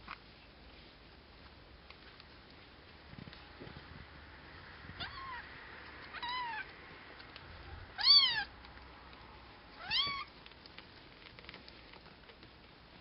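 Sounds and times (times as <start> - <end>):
kittens mewing: 4.9 - 6.8, 7.8 - 8.6, 9.8 - 10.4.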